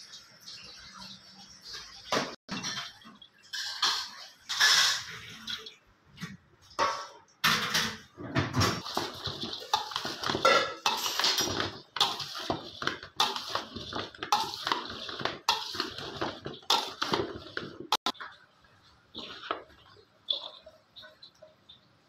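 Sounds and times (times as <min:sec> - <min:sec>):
dishes and utensils clattering: 0:01.6 - 0:18.5.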